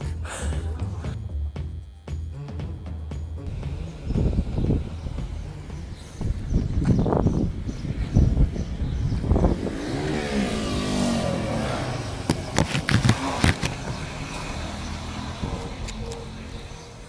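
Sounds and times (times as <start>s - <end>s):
vehicle driving past: 3.4s - 17.0s
thumps: 12.2s - 14.0s.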